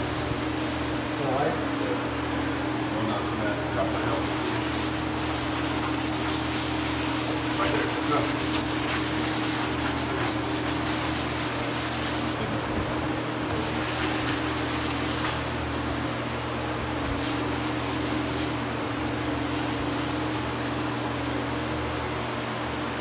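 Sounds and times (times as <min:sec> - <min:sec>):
low motor hum: 0:00.0 - 0:22.1
scrubbing wet tiles by hand: 0:03.8 - 0:12.4, 0:13.4 - 0:15.6, 0:17.0 - 0:18.6, 0:19.3 - 0:20.8.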